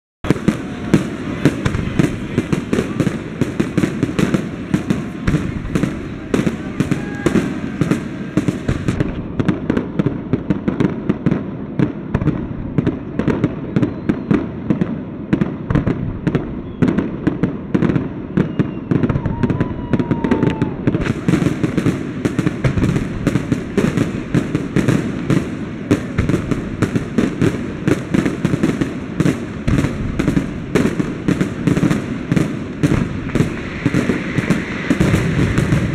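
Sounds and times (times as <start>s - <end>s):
fireworks bursts and crackling: 0.2s - 35.9s.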